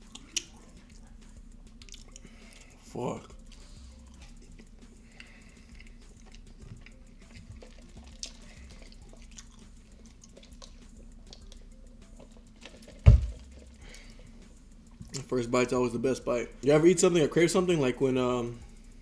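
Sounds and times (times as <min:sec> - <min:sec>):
chewing and wet mouth sounds: 0:00.0 - 0:15.5
loud low thump: 0:13.0 - 0:13.4.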